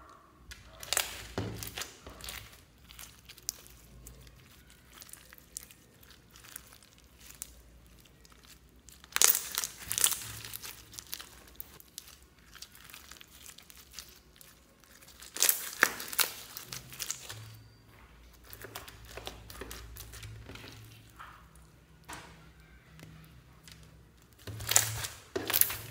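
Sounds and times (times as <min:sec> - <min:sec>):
beaded slime crackling when squeezed: 0:00.5 - 0:17.8, 0:22.6 - 0:25.9.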